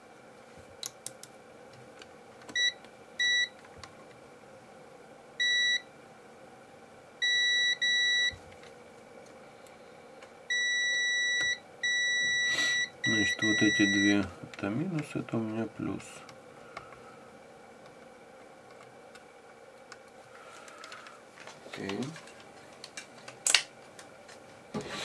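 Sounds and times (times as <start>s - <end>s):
multimeter continuity beeps: 2.6s - 3.6s, 5.4s - 5.9s, 7.2s - 8.4s, 10.5s - 14.3s.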